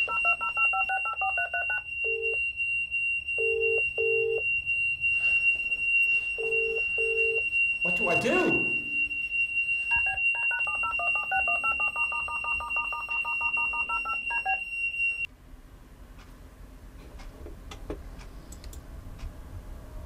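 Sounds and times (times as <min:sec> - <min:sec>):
telephone keypad tones: 0:00.0 - 0:02.4, 0:09.9 - 0:14.6
smoke alarm tone: 0:00.0 - 0:15.3
faint clicks: 0:17.2 - 0:19.3.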